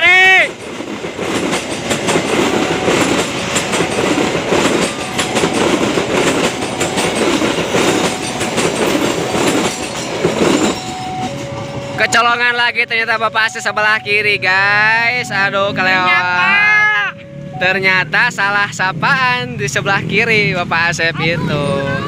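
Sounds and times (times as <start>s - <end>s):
train wheels clattering over rail joints: 0.5s - 12.0s.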